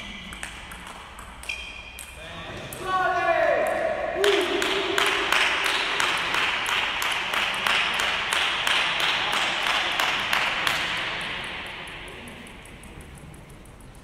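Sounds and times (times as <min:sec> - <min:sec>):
close person clapping: 0:04.2 - 0:11.0.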